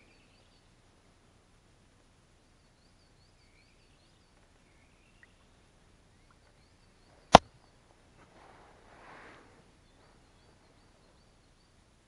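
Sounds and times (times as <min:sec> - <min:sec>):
faint birdsong: 0:00.0 - 0:12.0.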